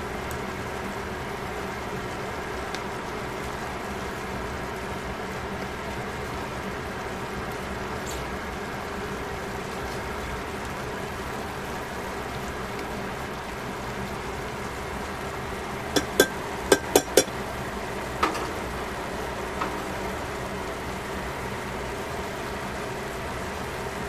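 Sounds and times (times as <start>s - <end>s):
steady hum and hiss: 0.0s - 24.0s
chopsticks tapping metal pan: 16.0s - 17.3s.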